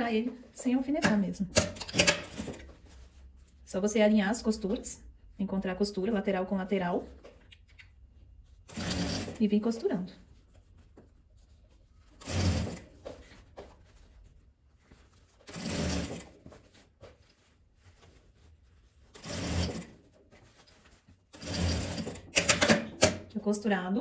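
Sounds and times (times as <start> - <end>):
sewing machine stitching: 1.0 - 2.7, 8.7 - 9.4, 12.2 - 12.9, 15.4 - 16.4, 19.1 - 20.0, 21.3 - 23.2.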